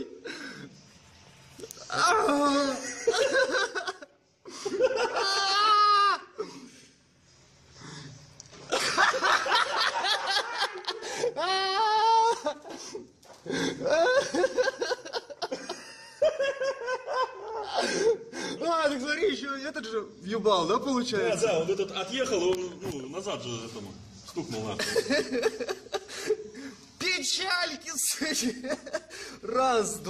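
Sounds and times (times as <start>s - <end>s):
men laughing hard: 2.1s - 6.6s, 8.7s - 18.5s, 24.8s - 26.8s, 28.4s - 29.3s.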